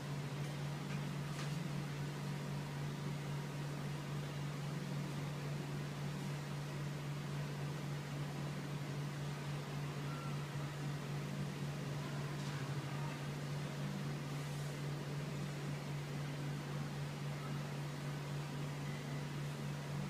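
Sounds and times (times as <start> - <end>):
steam generator hum and hiss: 12.7 - 20.0.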